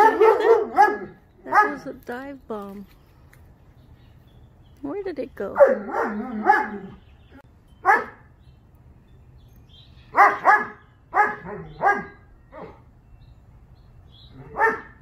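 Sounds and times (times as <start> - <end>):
dog barking: 0.0 - 1.8, 5.6 - 7.0, 7.8 - 8.2, 10.1 - 12.8, 14.4 - 15.0.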